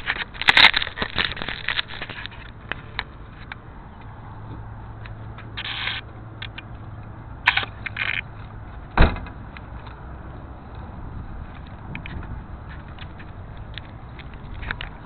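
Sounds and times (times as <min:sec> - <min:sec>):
loud thump: 0:09.0 - 0:09.4.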